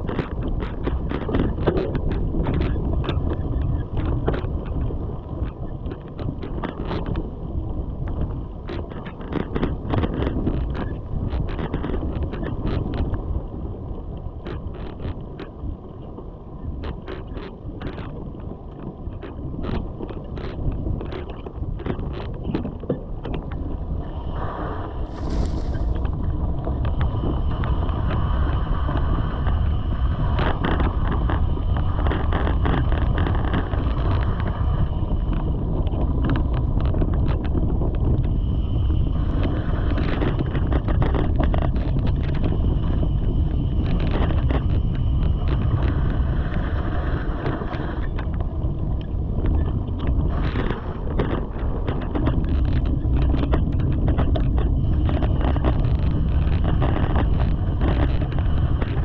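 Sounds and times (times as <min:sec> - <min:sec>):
wind buffeting microphone: 0:00.0 - 0:59.0
bike tyres rumbling on dirt: 0:16.9 - 0:59.0.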